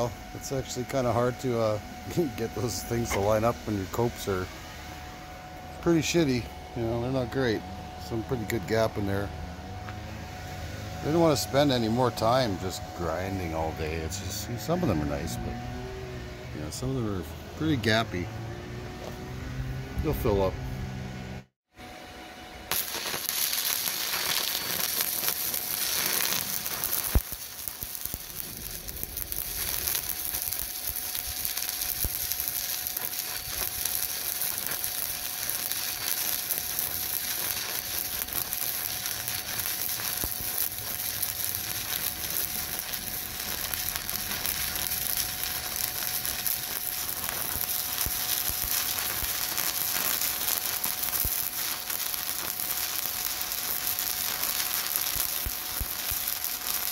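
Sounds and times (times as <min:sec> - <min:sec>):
welding arc crackling sizzle: 0:00.0 - 0:20.6, 0:21.9 - 0:56.9
sharp welding pop: 0:03.0 - 0:03.5, 0:22.7 - 0:56.9.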